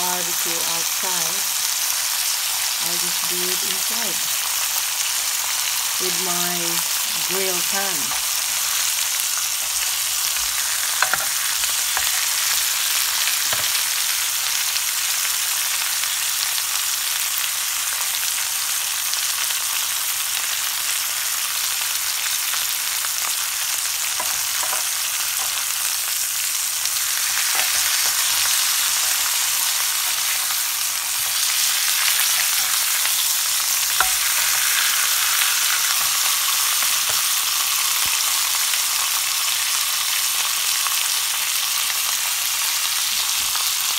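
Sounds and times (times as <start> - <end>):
meat sizzling in a grill pan: 0.0 - 43.9.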